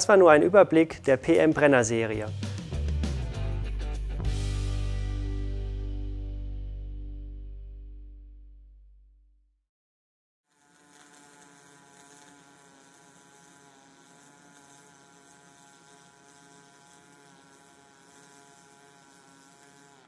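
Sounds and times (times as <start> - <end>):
welding arc buzzing: 10.5 - 20.0.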